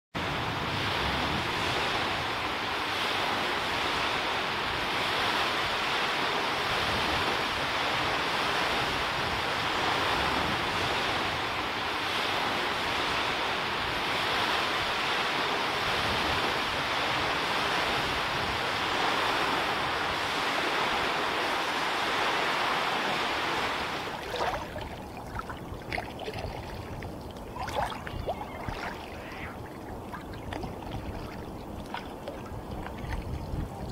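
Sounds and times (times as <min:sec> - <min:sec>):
water lapping against a kayak: 0:00.2 - 0:33.9
waves breaking on a beach: 0:00.2 - 0:33.9
water splashing and dripping: 0:24.1 - 0:33.9.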